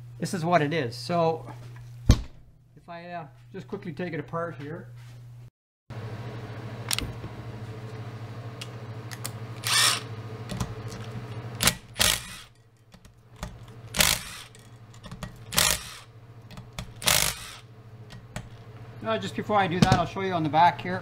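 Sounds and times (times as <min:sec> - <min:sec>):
steady low hum: 0:00.0 - 0:21.0
impact driver bursts: 0:09.6 - 0:10.1, 0:11.6 - 0:12.5, 0:13.9 - 0:14.6, 0:15.5 - 0:16.1, 0:17.0 - 0:17.7.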